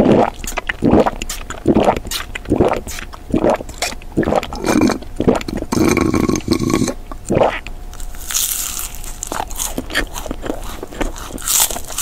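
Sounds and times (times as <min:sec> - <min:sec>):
person gulping: 0:00.0 - 0:07.7
sucking through a straw: 0:00.0 - 0:12.0.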